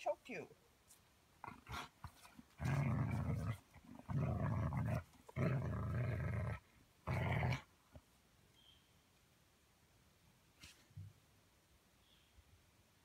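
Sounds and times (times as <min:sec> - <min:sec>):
dog growling: 0:02.6 - 0:07.7.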